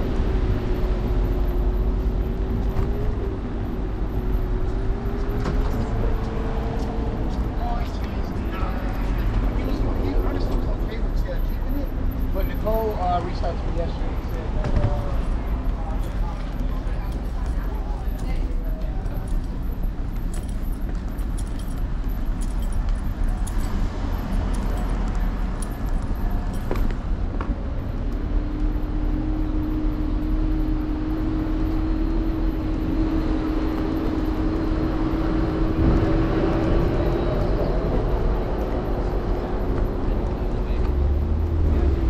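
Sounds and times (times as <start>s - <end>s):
road rumble: 0.0s - 42.0s
wind noise: 28.9s - 42.0s.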